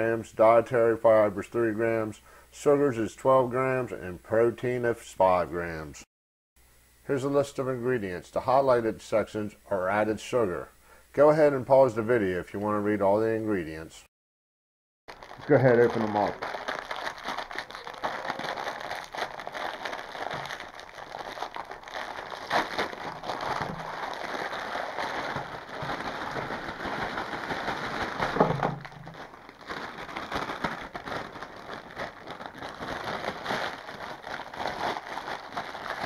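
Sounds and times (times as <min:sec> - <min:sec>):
plastic packaging crinkling: 0:15.1 - 0:36.0.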